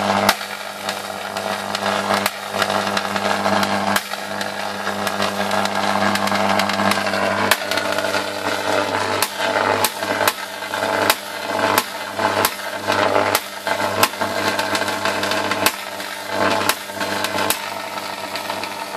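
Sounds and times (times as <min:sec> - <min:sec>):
electric arc snapping: 0:00.0 - 0:18.9
electrical arc buzzing: 0:00.0 - 0:18.9.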